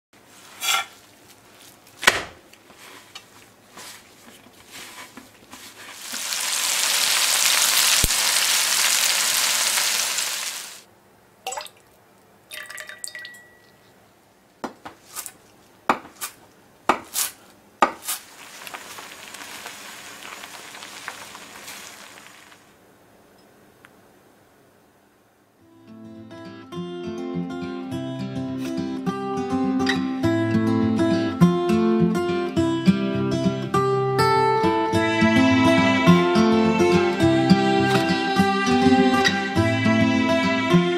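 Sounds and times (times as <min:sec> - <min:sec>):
food sizzling in a pan: 0:05.6 - 0:10.9, 0:18.0 - 0:22.8
loud steady hiss: 0:05.8 - 0:10.9, 0:18.1 - 0:23.2.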